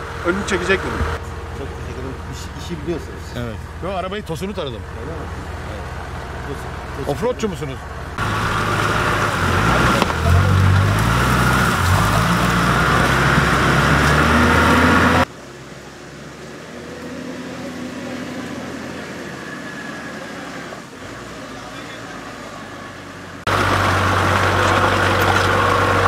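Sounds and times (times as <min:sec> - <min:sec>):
diesel engine revving hard: 0:08.1 - 0:15.3, 0:16.3 - 0:26.0.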